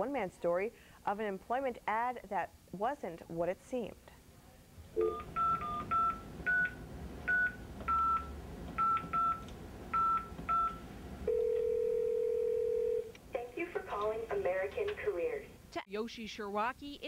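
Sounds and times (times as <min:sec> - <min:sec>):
phone keypad touch tone beeps: 0:05.0 - 0:09.4, 0:10.0 - 0:13.1
long steady phone line tone: 0:05.0 - 0:13.1.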